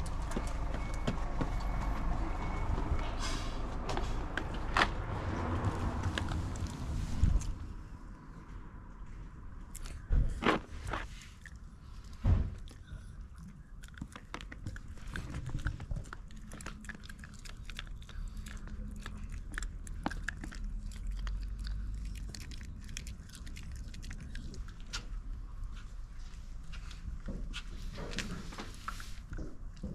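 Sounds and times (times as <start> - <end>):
dog crunching hard treat: 9.8 - 25.1.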